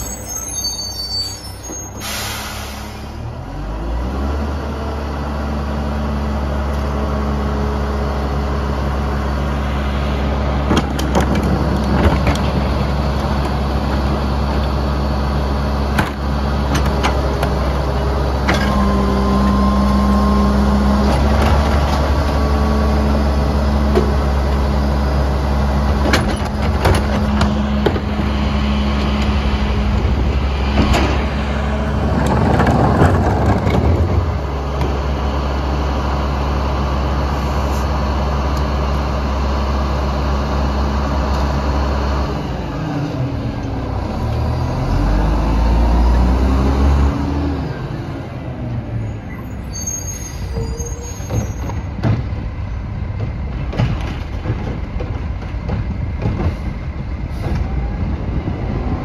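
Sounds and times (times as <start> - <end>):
garbage truck diesel engine: 0.0 - 59.0
hydraulics running: 6.2 - 42.3
cart knocking and banging: 10.6 - 14.2, 25.9 - 28.4, 30.7 - 35.0, 50.6 - 58.6.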